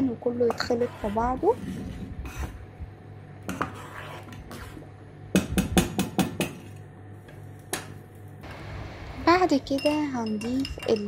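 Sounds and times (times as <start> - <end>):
metal spoon knocking against pot: 9.7 - 11.0.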